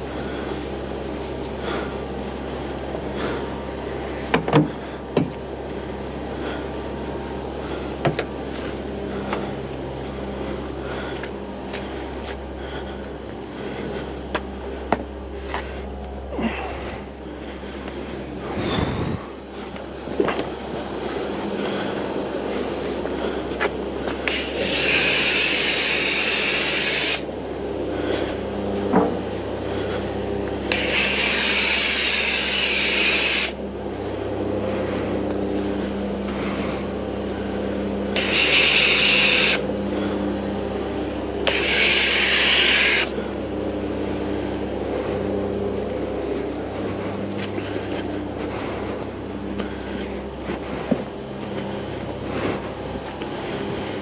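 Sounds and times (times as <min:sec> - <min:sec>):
steady mechanical hum: 0:00.0 - 0:54.0
foam lance spraying: 0:24.3 - 0:27.3, 0:30.6 - 0:33.6, 0:38.2 - 0:39.6, 0:41.4 - 0:43.2.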